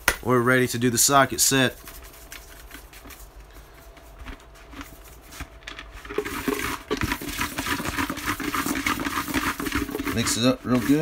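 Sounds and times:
plastic pail rustling and clicking: 0:02.3 - 0:11.0.

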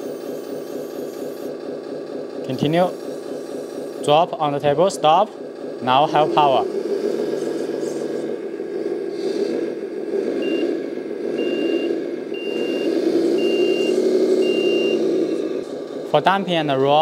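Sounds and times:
model truck running hum: 0:00.0 - 0:17.0
reversing beeper: 0:10.2 - 0:15.7.

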